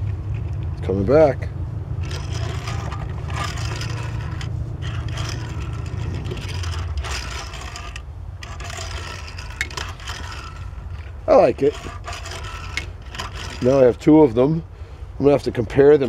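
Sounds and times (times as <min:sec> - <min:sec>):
steady low hum: 0:00.0 - 0:15.6
toy truck rolling on wooden table: 0:02.0 - 0:14.5.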